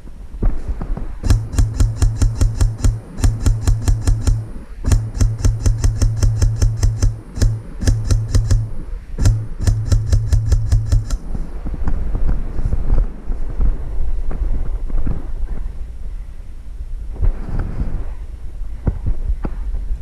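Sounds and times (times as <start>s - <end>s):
low steady hum: 0.0s - 12.2s
airsoft rifle rapid shots: 1.2s - 11.4s.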